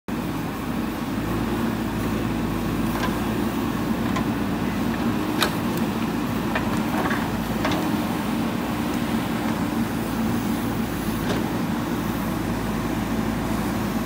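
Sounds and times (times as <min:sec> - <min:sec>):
diesel engine running: 0:00.1 - 0:14.0
backhoe digging soil: 0:01.1 - 0:14.0
metal clanks of backhoe arm: 0:02.9 - 0:08.2.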